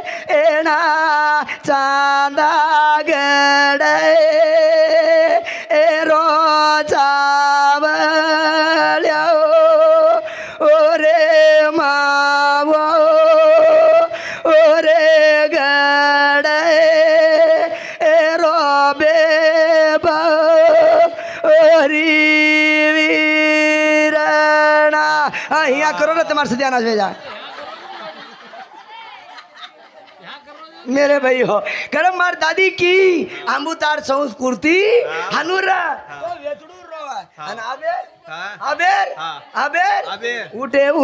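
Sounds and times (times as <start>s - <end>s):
man singing lament: 0.0s - 27.1s, 30.9s - 36.4s.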